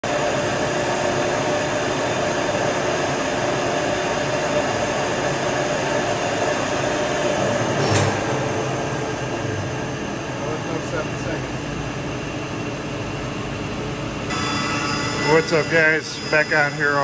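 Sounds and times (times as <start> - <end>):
chiller machinery running: 0.0 - 17.0.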